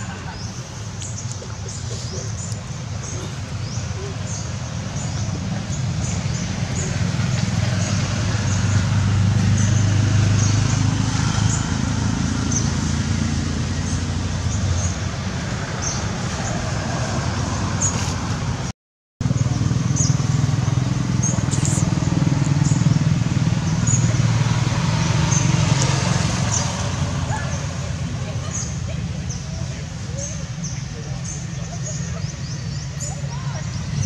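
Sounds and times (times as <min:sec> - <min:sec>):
engine low rumble: 0:00.0 - 0:34.0.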